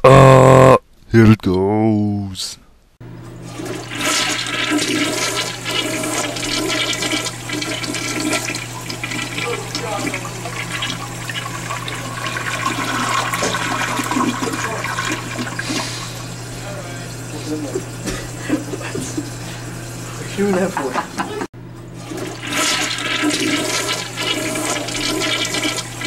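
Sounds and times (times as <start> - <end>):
toilet flushing: 3.1 - 26.0.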